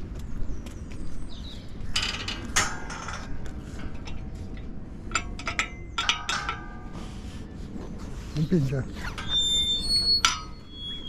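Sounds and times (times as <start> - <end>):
metallic clinking and rattling: 1.9 - 7.0.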